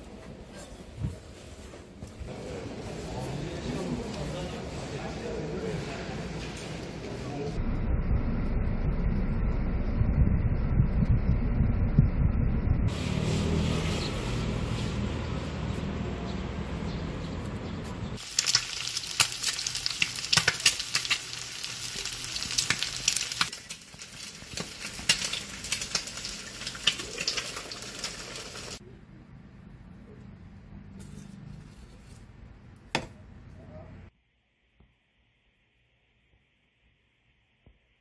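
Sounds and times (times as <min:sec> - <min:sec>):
steady hum: 0:07.6 - 0:12.9
eggs sizzling in a pan: 0:18.2 - 0:28.8
oil spattering crackles: 0:18.2 - 0:28.8.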